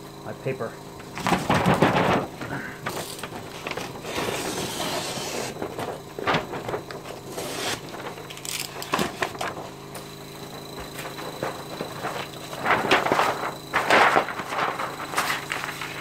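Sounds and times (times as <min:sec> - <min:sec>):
compressor pump humming: 0:00.0 - 0:16.0
rustling: 0:11.1 - 0:16.0.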